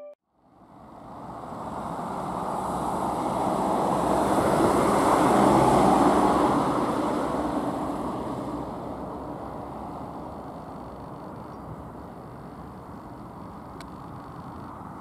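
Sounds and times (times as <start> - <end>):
minibus driving past on snowy road: 0.6 - 10.3.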